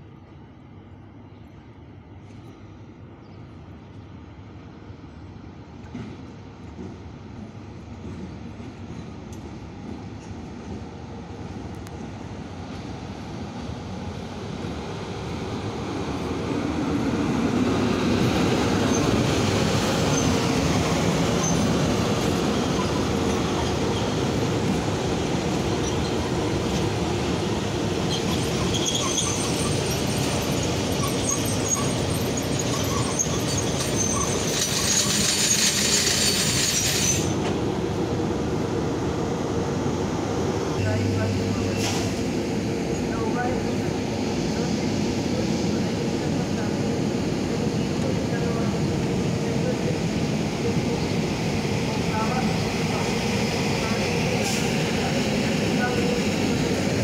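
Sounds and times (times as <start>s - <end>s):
electric locomotive passing: 11.2s - 57.0s
wheel squeals: 28.1s - 37.4s.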